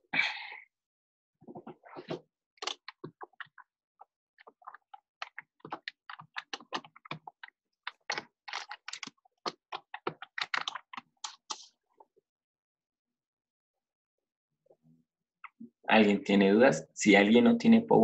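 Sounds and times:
typing on computer keyboard: 4.5 - 11.6.

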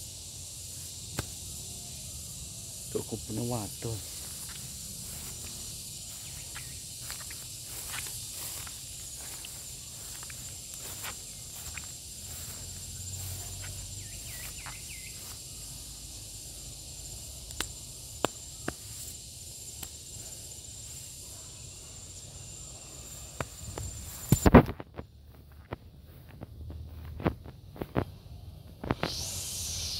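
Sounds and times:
cicada high-pitched buzz: 0.0 - 29.9
footsteps and snapping twigs: 1.0 - 1.4, 3.8 - 15.6, 17.3 - 20.9, 23.2 - 28.2
crackle of disturbed plants: 2.9 - 15.4, 23.2 - 28.2.

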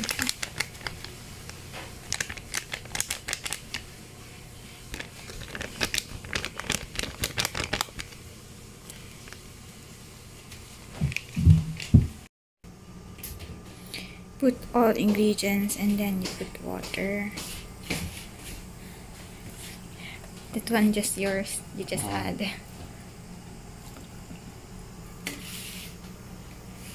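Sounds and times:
plastic sachets crinkling: 0.0 - 4.0, 4.8 - 8.2.

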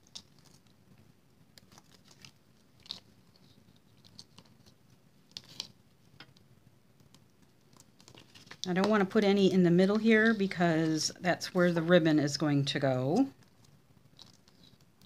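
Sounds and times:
paper rustling: 7.7 - 8.7.

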